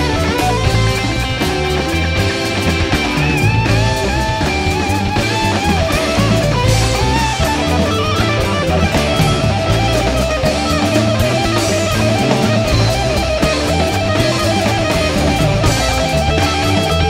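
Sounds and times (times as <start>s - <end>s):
bass guitar: 0.0s - 17.0s
drum kit: 0.0s - 17.0s
electric guitar lead: 0.0s - 17.0s.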